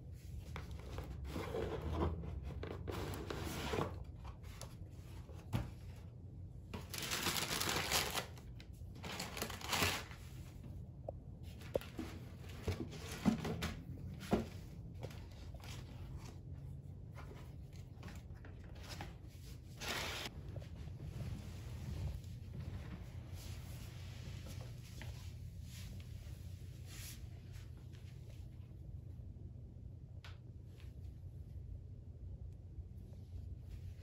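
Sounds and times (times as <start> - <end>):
tissue paper rustling: 6.8 - 10.6, 17.1 - 27.8.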